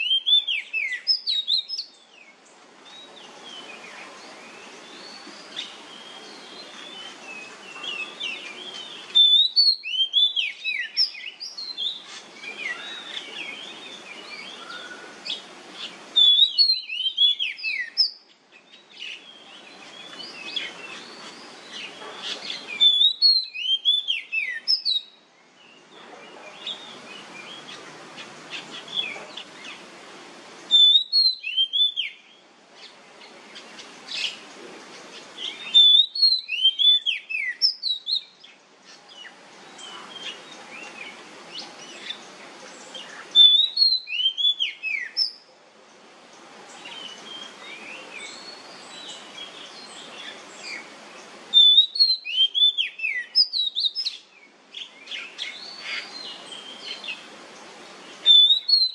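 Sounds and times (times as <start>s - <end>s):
bird singing clear whistles: 0.0s - 2.0s, 2.9s - 25.2s, 30.7s - 32.4s, 35.4s - 38.4s, 43.3s - 45.4s, 51.5s - 54.2s, 58.2s - 58.9s
steady background noise: 0.0s - 58.9s
bird twittering: 3.1s - 25.2s, 30.7s - 32.9s, 35.1s - 38.6s, 43.0s - 45.4s, 51.5s - 54.2s, 58.2s - 58.9s.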